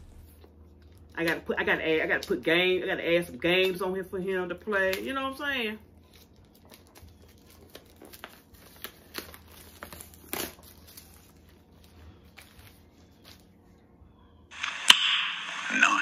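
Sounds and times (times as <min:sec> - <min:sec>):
packaging crinkling: 0:06.0 - 0:13.6.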